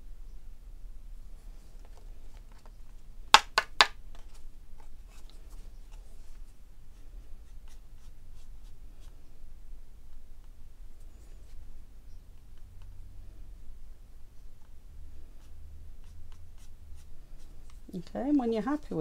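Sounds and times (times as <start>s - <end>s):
paintbrush scratching on card: 5.1s - 9.2s, 15.3s - 17.9s.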